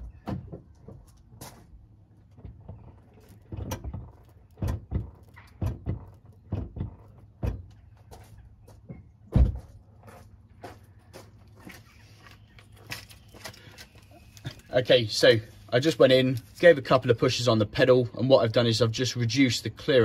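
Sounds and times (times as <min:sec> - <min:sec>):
brake pedal thuds: 0:02.4 - 0:07.8.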